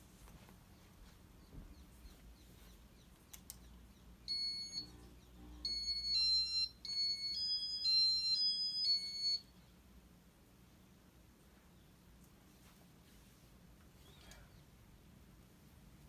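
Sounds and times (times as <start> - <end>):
sharp clicks: 3.2 - 3.7
electronic beeps: 4.2 - 9.5.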